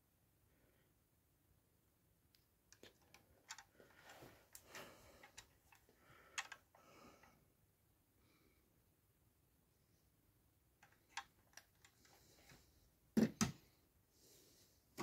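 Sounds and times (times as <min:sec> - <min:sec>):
small plastic clicks and rustles: 0:02.3 - 0:07.4, 0:10.8 - 0:12.6.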